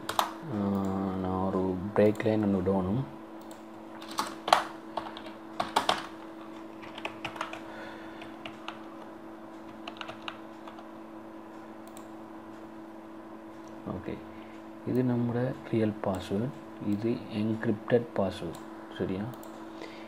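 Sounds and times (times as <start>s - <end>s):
computer keyboard typing: 0.0s - 1.1s, 3.4s - 10.9s.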